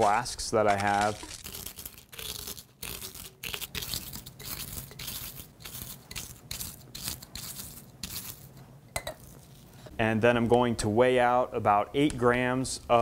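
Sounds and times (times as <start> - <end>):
cereal crunching in a bag: 0.0 - 6.0
plastic crinkling: 0.0 - 6.0.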